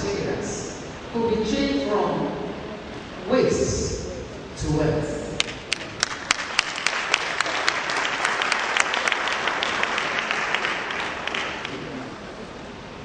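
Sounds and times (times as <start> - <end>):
audience applauding: 5.4 - 12.2.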